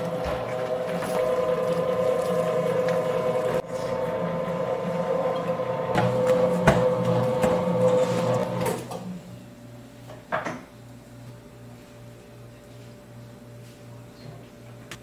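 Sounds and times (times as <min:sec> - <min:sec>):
dough mixer motor: 0:00.0 - 0:09.2.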